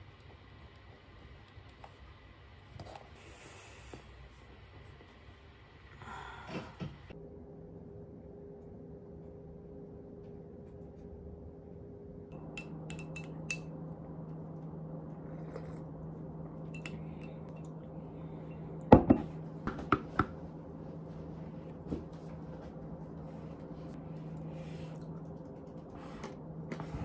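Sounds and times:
steady low hum: 0.0s - 27.0s
tableware clinking and knocking: 12.6s - 13.6s, 19.0s - 19.3s.

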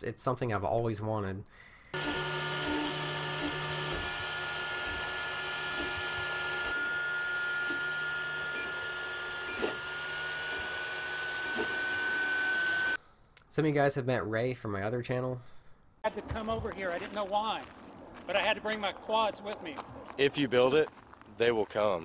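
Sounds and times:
printer high whine: 2.0s - 13.0s.

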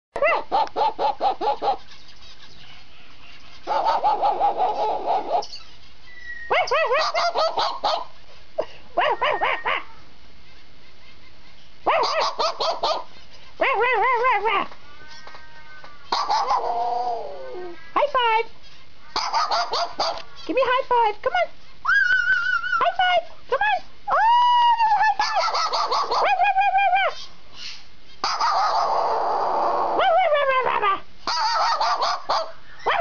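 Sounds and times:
bird imitating dog barks: 6.3s - 8.1s, 11.9s - 13.1s, 16.1s - 17.1s, 19.1s - 20.2s, 25.2s - 26.4s, 31.3s - 33.0s.

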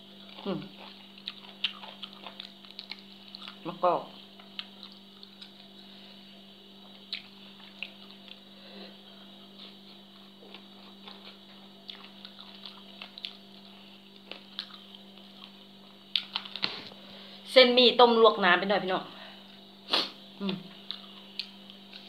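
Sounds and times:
chewing clicks: 0.3s - 3.6s, 7.1s - 8.4s.

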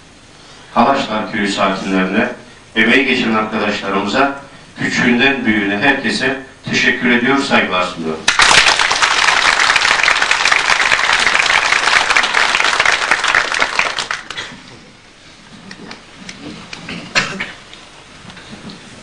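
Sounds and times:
audience applauding: 8.3s - 14.6s.

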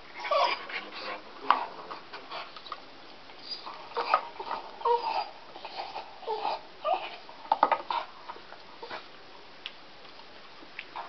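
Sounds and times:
dog whining and crying: 0.2s - 0.6s, 3.4s - 7.3s.

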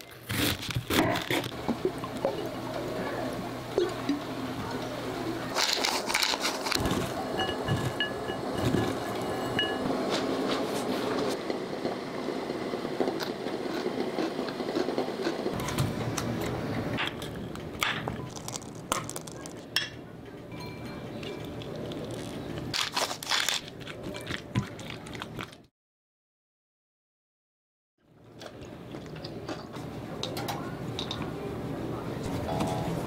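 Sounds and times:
shredded cabbage rustling in bowl: 5.4s - 8.0s.

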